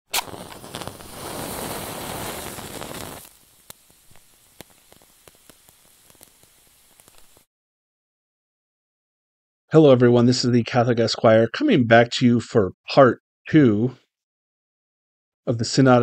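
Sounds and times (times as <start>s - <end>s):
flame crackling and popping: 0.1s - 7.5s
wick catching with rushing hiss: 0.1s - 7.5s.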